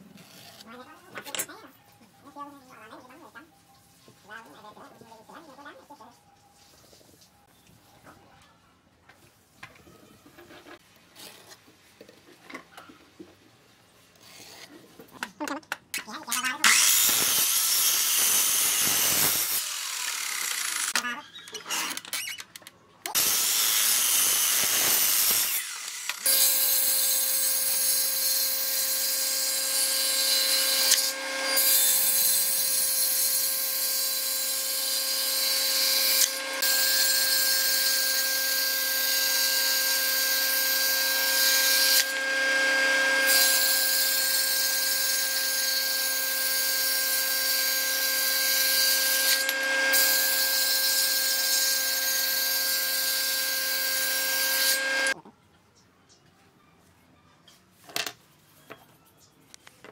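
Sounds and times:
miter saw cutting wood: 16.6s - 21.0s, 23.1s - 55.2s
table saw running: 23.2s - 55.2s.

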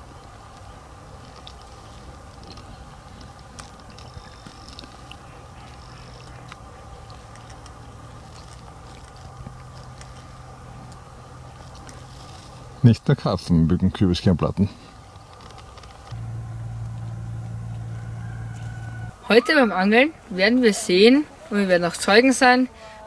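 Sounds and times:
steady low hum: 14.8s - 19.2s.

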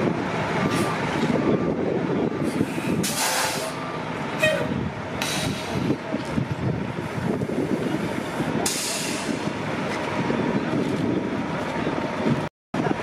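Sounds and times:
bus engine rumbling: 0.0s - 13.0s
short air hisses: 2.7s - 3.8s.

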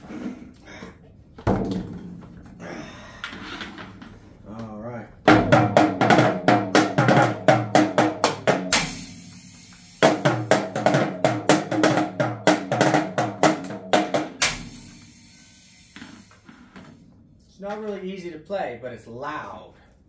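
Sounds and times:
toy drums hit with sticks: 5.3s - 16.9s
cymbal crash: 8.7s - 10.5s, 14.4s - 16.4s.

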